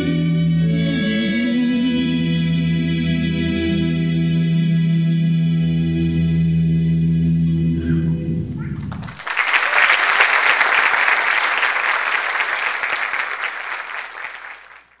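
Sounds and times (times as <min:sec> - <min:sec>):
audience applauding: 0:08.6 - 0:15.0.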